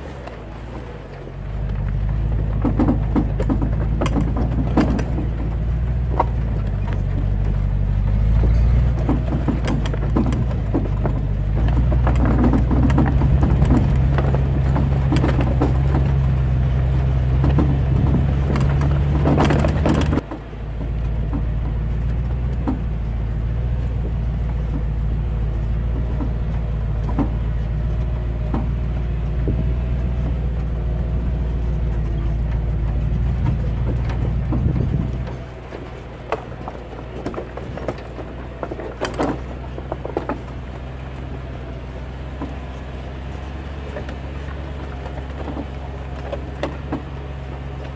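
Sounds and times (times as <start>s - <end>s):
truck engine drone: 0.0s - 47.9s
chain and drag rattling: 2.0s - 20.5s.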